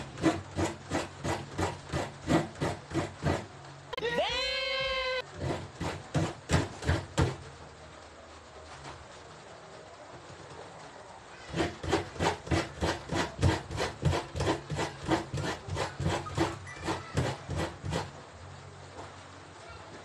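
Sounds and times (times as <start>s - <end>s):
coconut scraping on grater: 0.0s - 3.5s, 5.3s - 7.4s, 11.5s - 18.2s.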